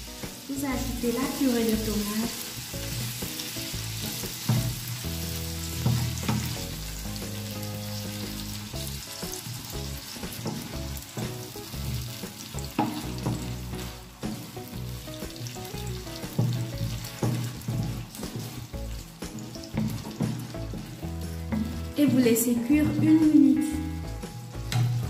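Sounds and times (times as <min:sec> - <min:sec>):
food sizzling in a frying pan: 0:00.0 - 0:25.0
soft background music: 0:00.0 - 0:25.0
wooden spatula scraping a pan: 0:03.0 - 0:06.7, 0:10.3 - 0:14.7, 0:16.2 - 0:22.1.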